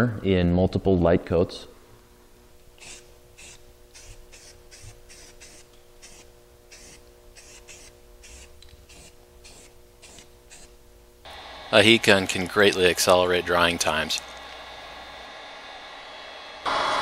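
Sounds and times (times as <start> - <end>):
spray can hissing: 2.8 - 10.7.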